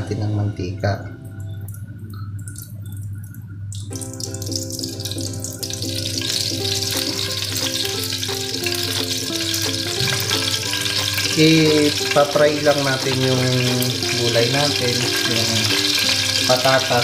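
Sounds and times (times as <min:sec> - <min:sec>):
background music: 0:00.0 - 0:17.0
oil pouring into pan: 0:02.4 - 0:17.0
oil sizzling in frying pan: 0:03.8 - 0:17.0.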